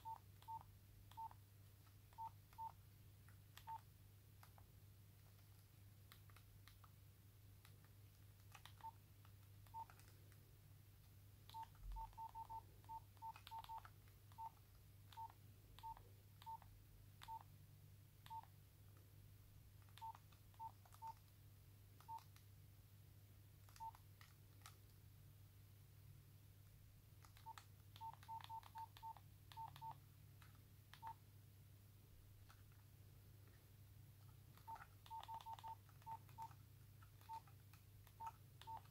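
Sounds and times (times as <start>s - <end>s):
phone keypad beeps: 0.0s - 1.4s, 2.1s - 2.8s, 11.5s - 17.5s, 18.3s - 18.5s, 20.0s - 21.2s, 22.0s - 22.3s, 23.8s - 24.0s, 27.4s - 30.0s, 31.0s - 31.2s, 34.6s - 36.5s, 37.2s - 37.5s, 38.2s - 38.9s.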